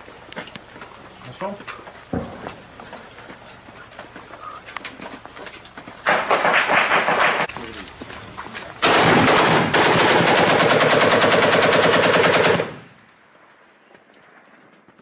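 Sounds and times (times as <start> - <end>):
automatic rifle bursts: 8.8 - 12.9.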